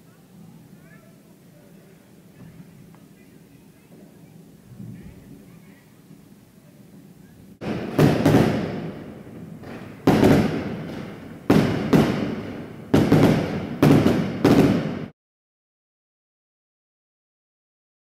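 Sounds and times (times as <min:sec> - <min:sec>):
fireworks exploding: 0:06.9 - 0:15.1.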